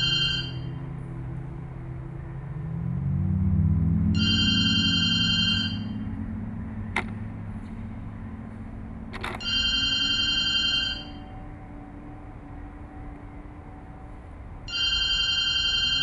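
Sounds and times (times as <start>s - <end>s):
high electronic ringing tone: 0.0s - 0.9s, 4.1s - 6.1s, 9.4s - 11.8s, 14.6s - 16.0s.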